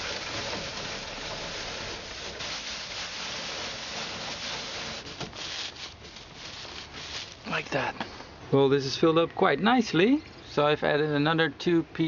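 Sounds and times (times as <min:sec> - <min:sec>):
dry straw rustling: 0:00.0 - 0:07.9.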